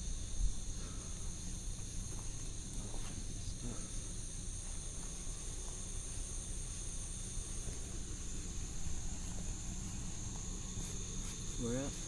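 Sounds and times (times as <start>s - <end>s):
night insects trilling: 0.0s - 12.0s.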